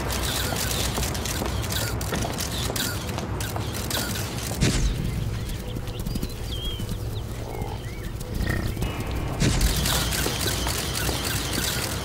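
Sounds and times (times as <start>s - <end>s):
small birds chirping: 0.2s - 12.0s
buffalo herd rumble: 6.3s - 9.7s
camera shutter clicks: 9.4s - 12.0s.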